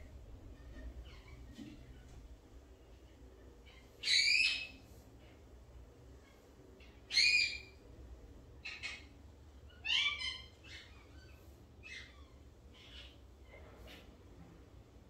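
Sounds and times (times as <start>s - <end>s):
bird high-pitched calls: 3.6s - 4.9s, 6.2s - 7.8s, 8.6s - 13.3s.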